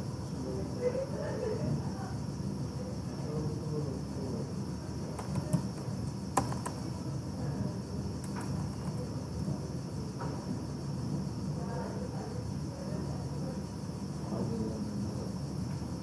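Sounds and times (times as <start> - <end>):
keyboard keystroke clicks: 5.2 - 5.8, 6.4 - 6.8.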